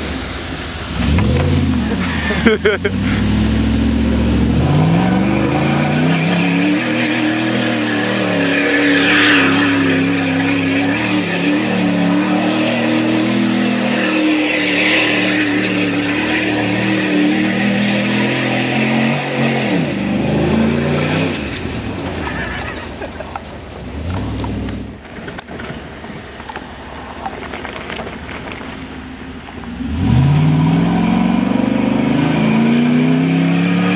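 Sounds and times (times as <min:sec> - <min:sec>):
wheels spinning on gravel: 0:00.0 - 0:17.0, 0:21.3 - 0:30.2
pickup engine revving: 0:00.0 - 0:33.9.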